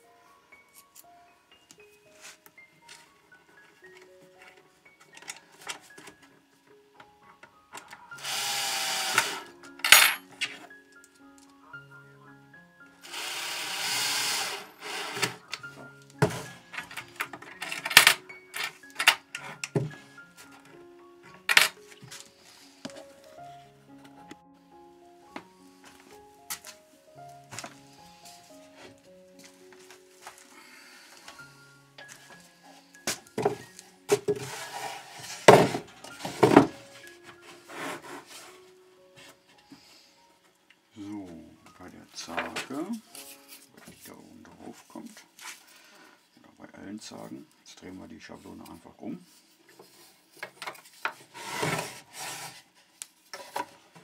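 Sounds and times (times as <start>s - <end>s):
cordless drill driving screw: 8.2s - 9.5s, 13.0s - 15.4s
wooden boxes rubbing: 32.7s - 39.5s, 50.8s - 54.0s
wood knocking and scraping: 33.1s - 38.3s.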